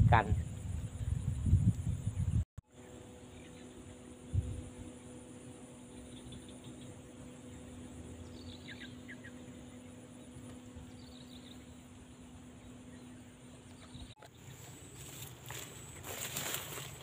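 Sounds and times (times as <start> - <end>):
low hum: 0.0 - 17.0
insect buzzing: 0.4 - 17.0
bird chirps: 5.8 - 14.8.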